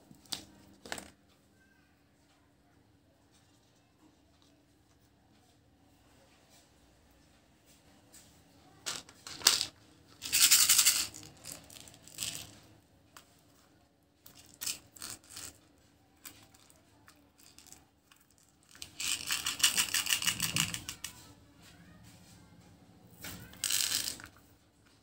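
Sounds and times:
candies rattling in plastic dispenser: 8.8s - 12.7s, 14.2s - 16.7s, 17.4s - 21.2s, 23.2s - 24.4s.

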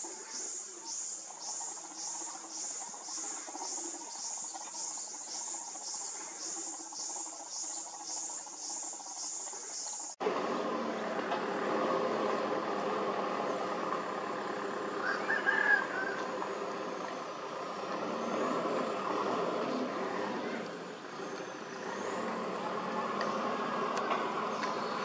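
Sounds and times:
bird-like chirp: 0.0s - 10.2s
crickets chirping: 0.0s - 10.2s
engine-like hum: 0.0s - 25.0s.

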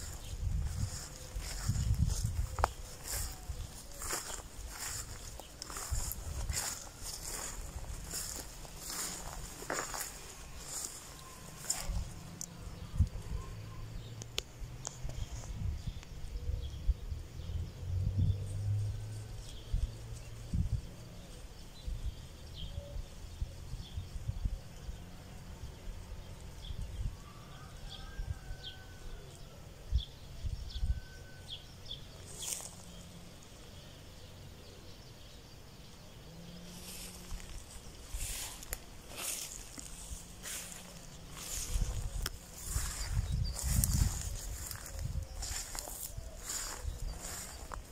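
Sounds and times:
wind rumble on microphone: 0.0s - 11.0s, 11.6s - 31.3s, 36.8s - 47.9s
tall grass rustling: 0.0s - 13.4s, 32.1s - 34.4s, 36.2s - 47.9s
faint chirps: 0.0s - 16.8s, 30.8s - 47.9s.

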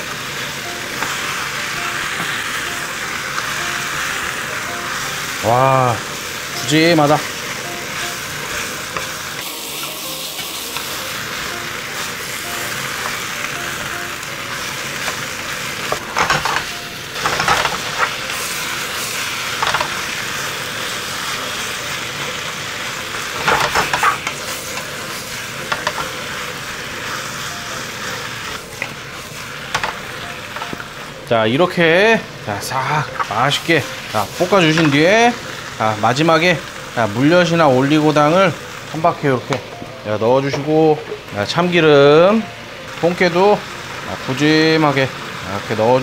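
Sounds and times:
food sizzling in a wok: 0.0s - 46.0s
spatula scraping a pan: 23.4s - 26.4s.

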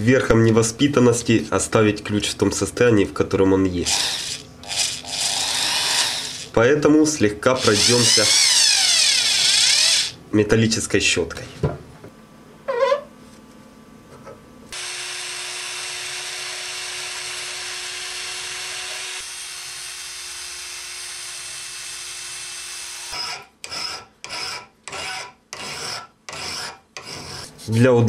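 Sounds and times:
drill wire brush scratching steel: 3.9s - 6.6s
hand file scraping metal: 23.7s - 27.8s.

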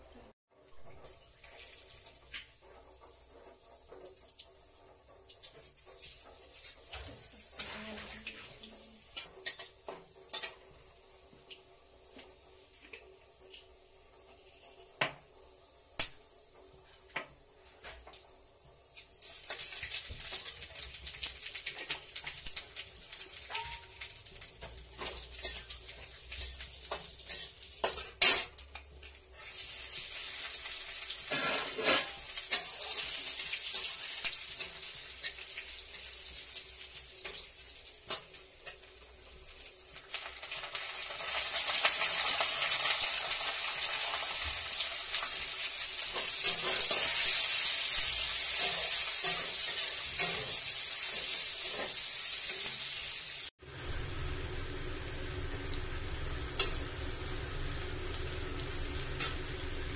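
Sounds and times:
hot oil sizzling: 0.5s - 59.9s
spatula clinking on pan: 23.5s - 24.1s.

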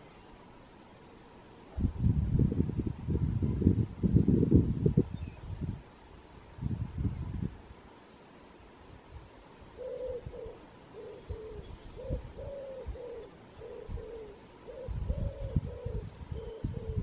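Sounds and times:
dove cooing: 9.7s - 17.0s.

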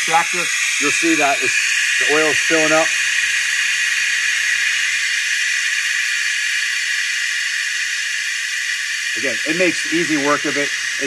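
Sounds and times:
compressed air hissing: 0.0s - 11.0s.

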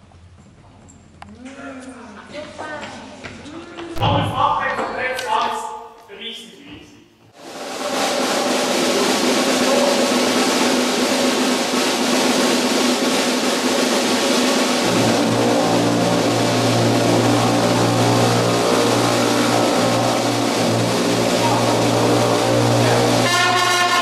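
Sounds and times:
brass band with drums: 7.4s - 24.0s
deep bass line: 8.5s - 24.0s.

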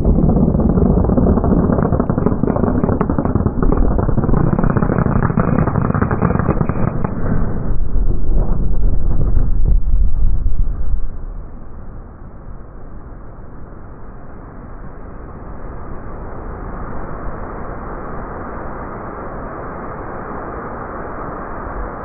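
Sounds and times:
crackling rattle of detonations: 0.0s - 13.5s
heavy low rumble: 0.0s - 13.8s.

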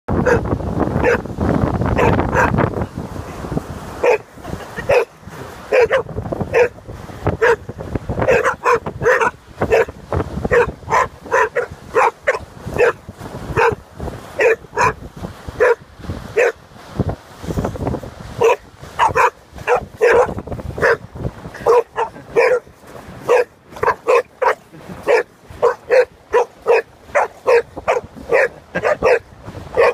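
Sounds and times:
dogs barking: 0.2s - 1.2s, 2.0s - 2.6s, 4.0s - 6.8s, 7.4s - 13.0s, 13.6s - 13.8s, 14.4s - 15.0s, 15.6s - 15.8s, 16.4s - 16.6s, 18.4s - 21.0s, 21.6s - 29.9s.

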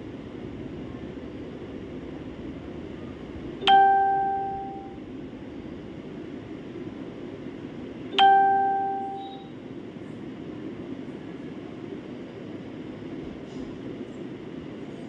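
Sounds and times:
steady background hum: 0.0s - 15.0s
bell-like chime: 8.2s - 9.4s.

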